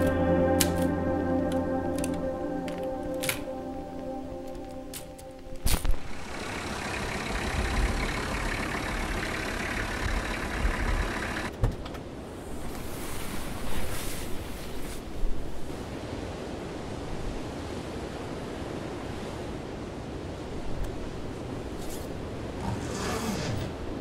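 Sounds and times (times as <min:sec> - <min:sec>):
van engine rumbling: 0:05.6 - 0:11.6, 0:22.4 - 0:24.0.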